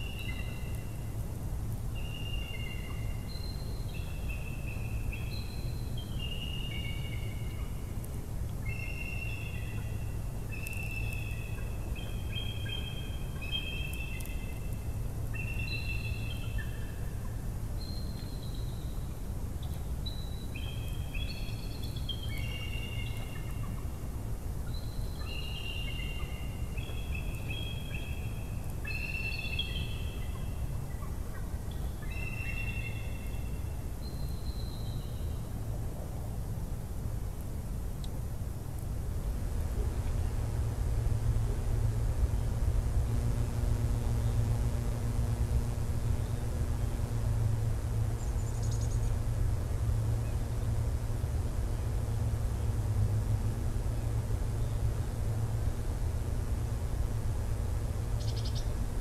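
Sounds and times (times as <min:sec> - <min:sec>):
low rumble: 0:38.9 - 0:58.2.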